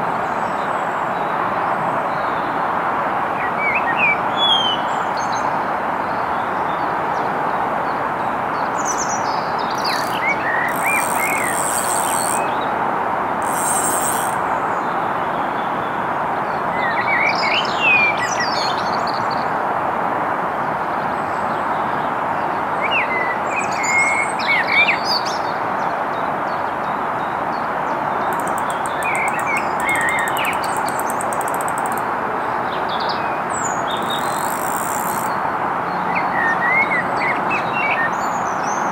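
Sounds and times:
small birds chirping: 0:09.6 - 0:12.6, 0:28.1 - 0:32.0
very high fine buzz: 0:09.8 - 0:12.5, 0:13.4 - 0:14.4.

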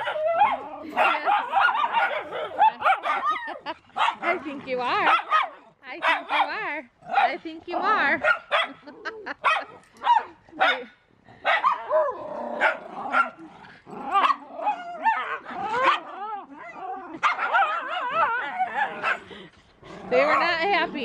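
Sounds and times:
dogs whining: 0:00.0 - 0:05.4, 0:11.6 - 0:19.5
dogs barking and yipping: 0:00.0 - 0:21.0.

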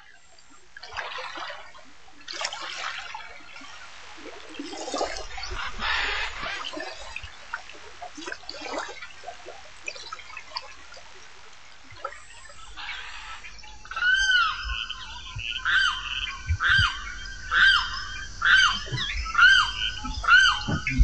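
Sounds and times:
water splashing and trickling: 0:00.0 - 0:14.9
water dripping: 0:02.2 - 0:12.3.

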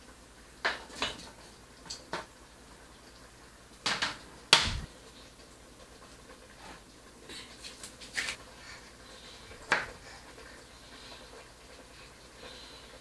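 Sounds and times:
loud knock on worktop: 0:03.9 - 0:04.9.

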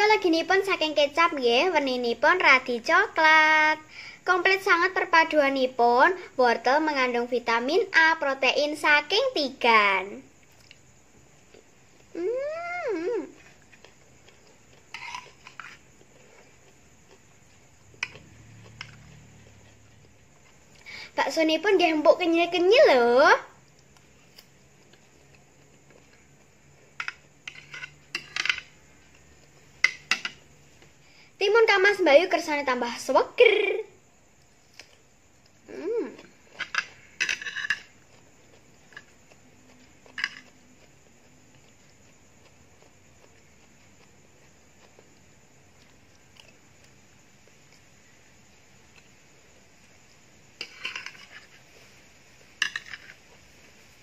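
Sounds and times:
person humming: 0:12.2 - 0:13.4, 0:35.7 - 0:36.3
cutlery scraping plastic plate: 0:14.9 - 0:15.8, 0:27.0 - 0:28.7, 0:36.6 - 0:37.9, 0:50.6 - 0:51.6, 0:52.6 - 0:53.2.

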